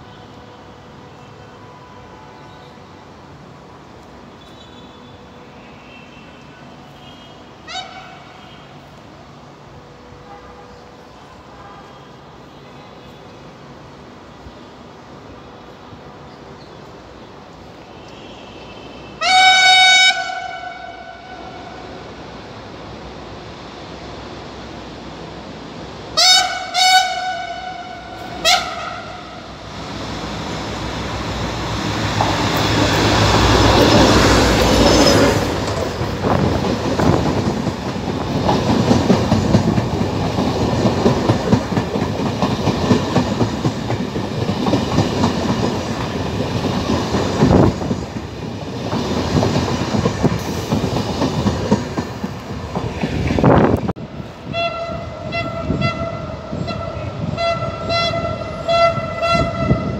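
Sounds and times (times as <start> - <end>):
locomotive horn blasts: 18.1 - 21.8, 26.2 - 29.6, 54.4 - 59.9.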